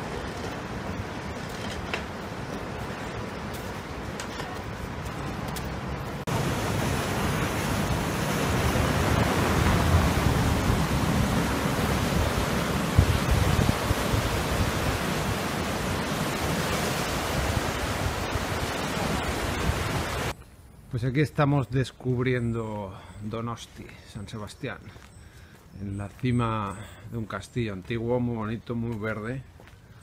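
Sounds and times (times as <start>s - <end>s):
wind rumbling on microphone: 0.0s - 20.3s
waves breaking over rocks: 6.2s - 20.3s.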